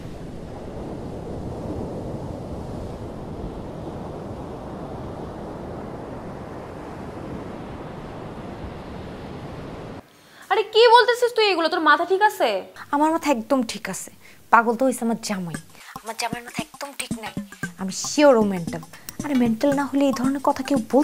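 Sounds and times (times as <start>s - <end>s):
sea surf breaking on beach: 0.0s - 10.0s
wind: 0.0s - 10.1s.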